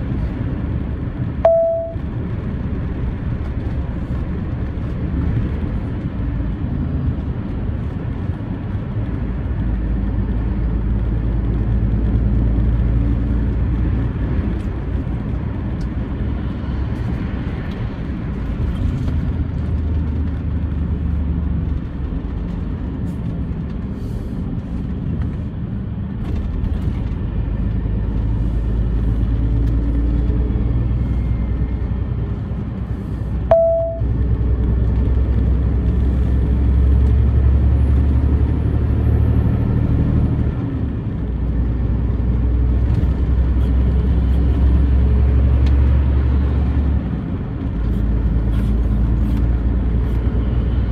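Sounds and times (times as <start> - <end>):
road rumble: 0.0 - 50.9
truck engine from inside cab: 0.0 - 50.9
short beep: 1.4 - 2.0, 33.5 - 34.1.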